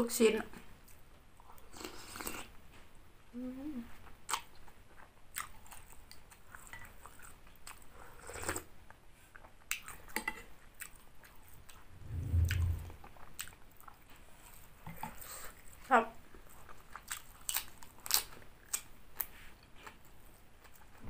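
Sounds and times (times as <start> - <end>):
low hum: 11.9 - 13.1
person chewing: 16.4 - 20.0.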